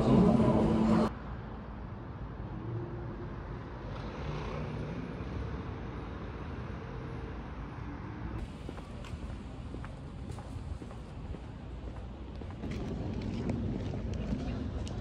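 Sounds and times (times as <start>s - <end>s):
distant road traffic: 0.0s - 15.0s.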